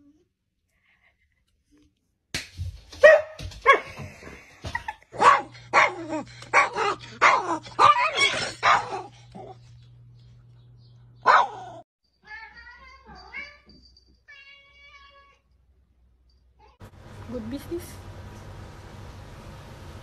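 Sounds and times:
dog barking sharply: 0:03.0 - 0:03.9, 0:11.2 - 0:11.8
small dog barking high: 0:03.0 - 0:03.9, 0:05.2 - 0:09.1, 0:11.2 - 0:11.8.

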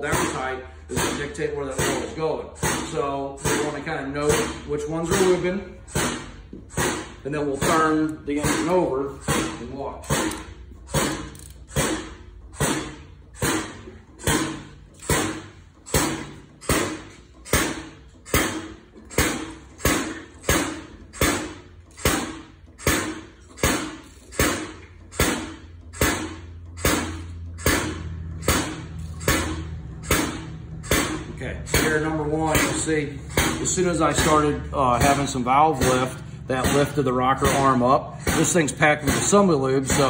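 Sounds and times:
low steady hum: 0:00.0 - 0:40.0
hand wrench clicking: 0:10.1 - 0:11.8.

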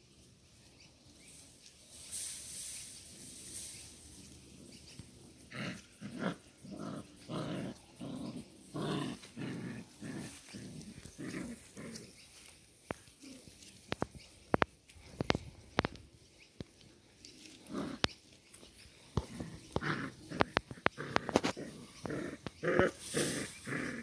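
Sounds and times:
hissing rustle: 0:00.0 - 0:24.0
puppies growling: 0:04.3 - 0:13.9, 0:17.3 - 0:24.0.

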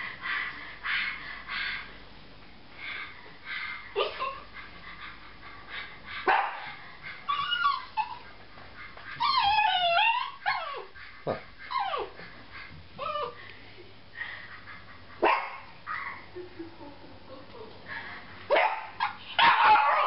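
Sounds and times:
small dog barking: 0:06.3 - 0:06.6, 0:15.2 - 0:15.6, 0:18.5 - 0:20.0
dog wavering cry: 0:07.3 - 0:08.2, 0:09.2 - 0:11.0, 0:19.0 - 0:20.0.

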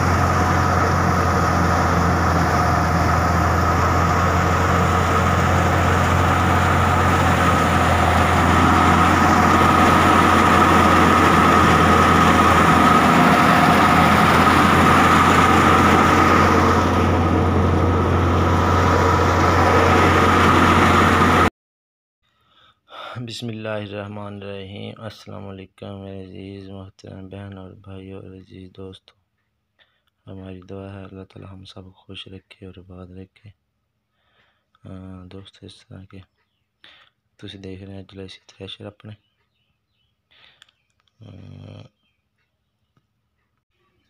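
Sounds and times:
high whine: 0:00.0 - 0:21.5
thresher low drone: 0:00.0 - 0:21.5.

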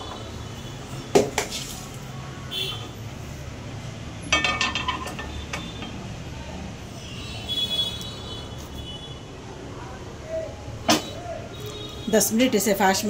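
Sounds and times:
metal cookware knocking and clinking: 0:04.3 - 0:06.0.

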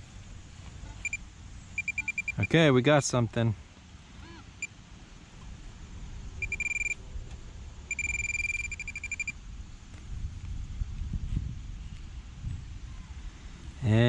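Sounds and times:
metal detector pinpointer beeping: 0:00.9 - 0:01.2, 0:01.8 - 0:02.6, 0:06.4 - 0:07.0, 0:07.9 - 0:09.4.

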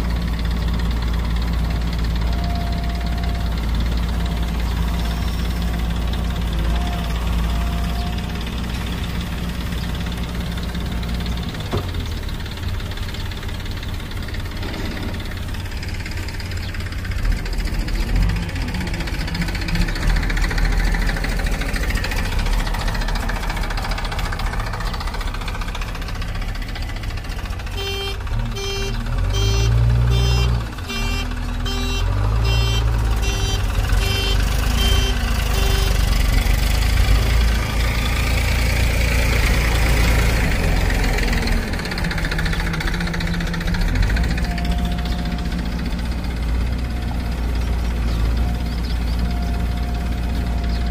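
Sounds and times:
diesel engines running under load: 0:00.0 - 0:50.9
high electronic beeping: 0:27.8 - 0:36.1.

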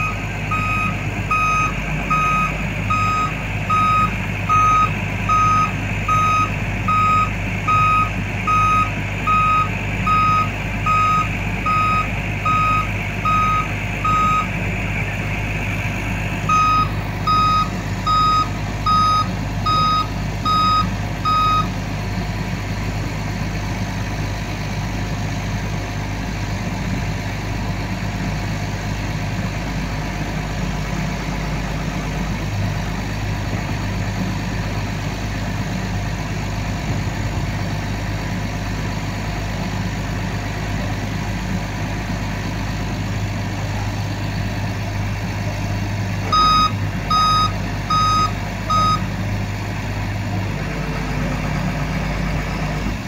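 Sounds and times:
backup warning beeper: 0:00.0 - 0:14.5, 0:16.5 - 0:21.7, 0:46.3 - 0:49.0
diesel engine running: 0:00.0 - 0:53.0.

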